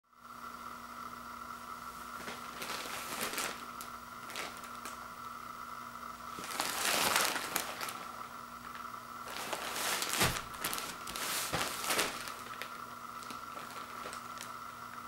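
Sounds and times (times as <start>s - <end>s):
plastic wrap crinkling: 2.2s - 5.1s, 6.3s - 15.0s.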